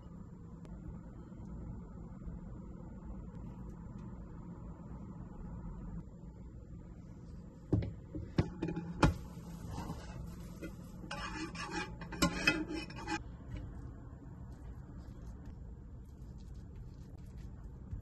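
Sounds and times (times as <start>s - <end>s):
metal spoon scraping saucepan: 9.7s - 13.2s.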